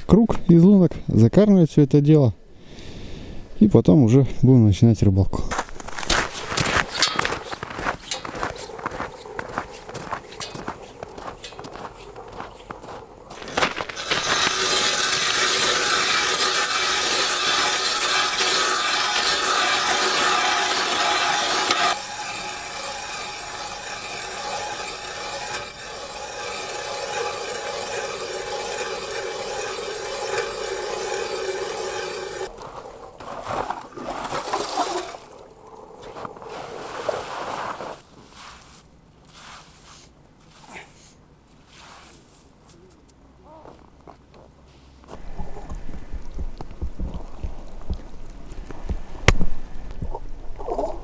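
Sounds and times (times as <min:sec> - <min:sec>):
short scrapes: 0:05.8 - 0:28.2, 0:36.0 - 0:42.9
ice auger grinding through ice: 0:05.8 - 0:35.4.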